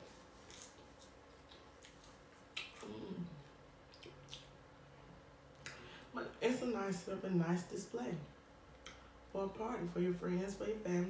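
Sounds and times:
person humming mm: 2.7s - 3.5s.

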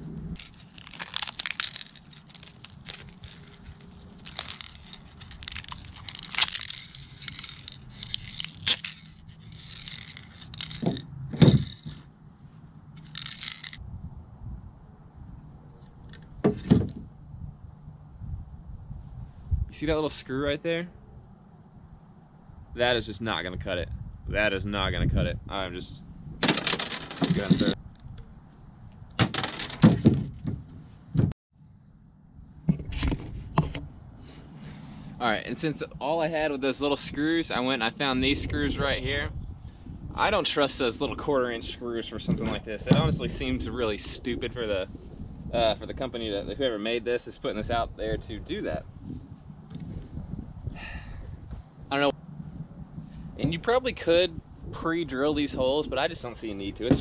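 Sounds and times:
plastic parts scraping and crinkling: 0.4s - 12.1s, 13.0s - 13.8s, 26.4s - 27.8s, 29.2s - 30.9s.

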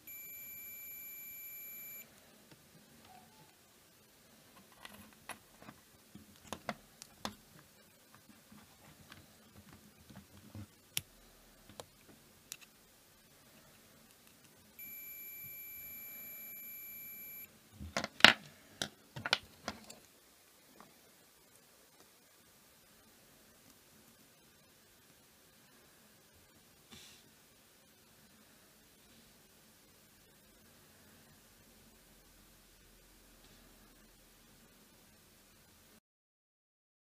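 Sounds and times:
multimeter continuity beep: 0.0s - 2.1s, 14.8s - 17.5s.

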